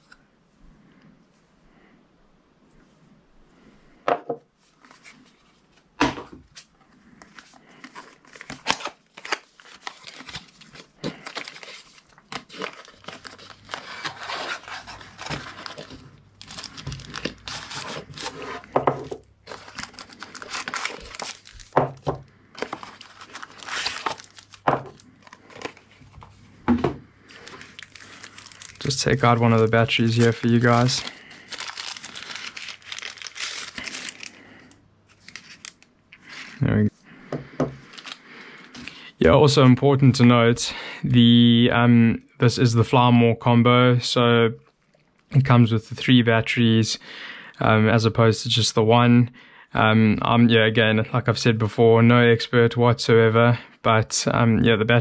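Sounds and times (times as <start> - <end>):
cardboard packaging rustling: 6.5 - 34.4, 35.1 - 36.8, 37.8 - 38.9
items knocking on wooden desk: 37.3 - 37.8.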